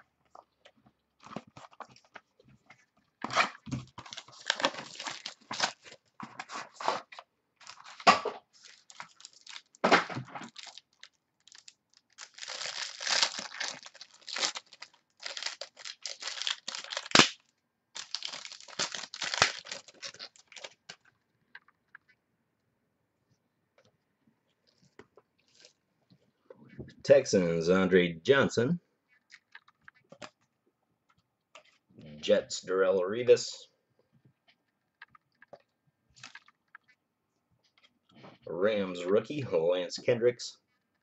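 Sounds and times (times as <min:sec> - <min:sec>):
plastic wrapping crackling: 0:03.9 - 0:06.1, 0:07.6 - 0:21.1.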